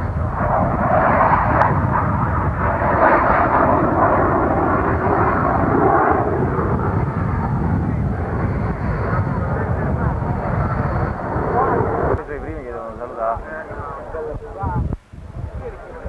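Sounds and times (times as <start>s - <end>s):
jet engine roar: 0.0s - 14.7s.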